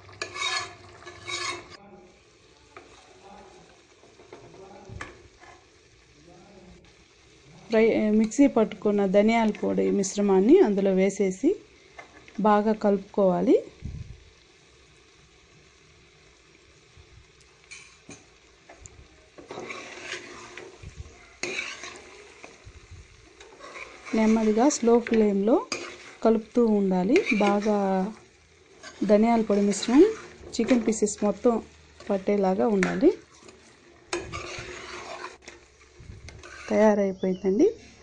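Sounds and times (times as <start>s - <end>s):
metal spoon scraping pot: 0.0s - 1.8s, 19.4s - 22.6s, 23.3s - 26.4s, 27.0s - 31.2s, 32.0s - 37.0s
faint sizzle: 0.0s - 38.0s.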